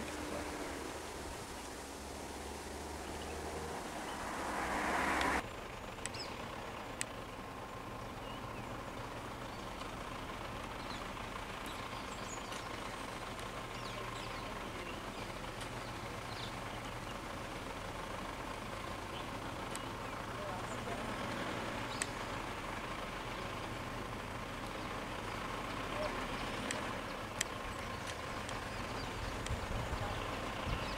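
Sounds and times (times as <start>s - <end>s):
vehicle passing close: 0.0s - 5.5s
sharp clicks: 26.5s - 28.7s.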